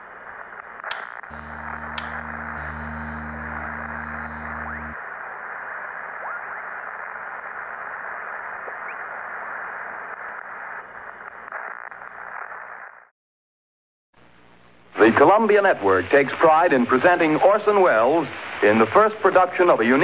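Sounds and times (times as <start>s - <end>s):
radio static hiss: 0.0s - 13.1s, 14.2s - 20.0s
low sustained musical chord: 1.3s - 5.0s.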